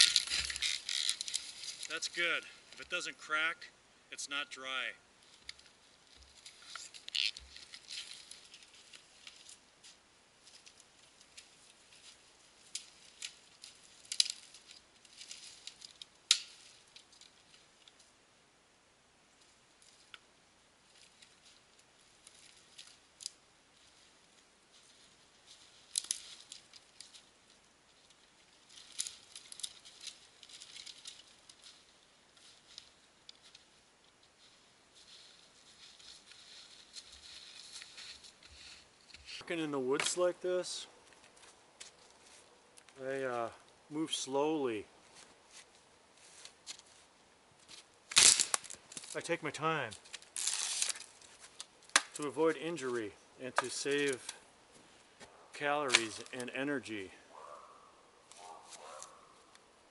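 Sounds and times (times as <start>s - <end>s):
twigs cracking: 0.0s - 3.0s, 5.2s - 18.1s, 19.4s - 43.8s, 45.0s - 52.4s, 53.5s - 56.6s, 57.3s - 59.9s
footsteps crunching through snow: 34.4s - 39.5s, 45.0s - 48.5s, 58.3s - 59.4s.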